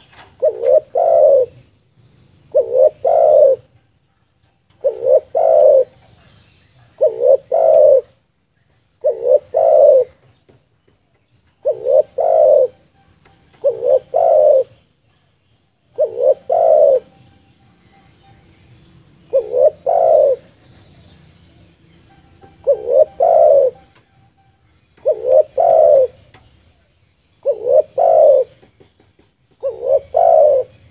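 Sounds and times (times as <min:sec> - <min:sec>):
dove cooing: 0:00.0 - 0:01.8, 0:02.5 - 0:03.8, 0:04.7 - 0:08.2, 0:09.0 - 0:10.3, 0:11.6 - 0:12.9, 0:13.5 - 0:14.9, 0:15.8 - 0:17.4, 0:19.3 - 0:20.9, 0:22.4 - 0:28.8, 0:29.5 - 0:30.9.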